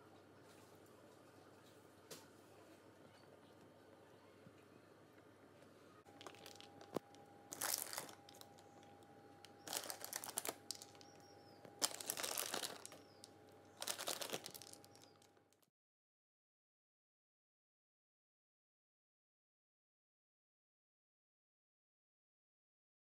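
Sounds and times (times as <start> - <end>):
plastic packaging crinkling: 6.1 - 15.7.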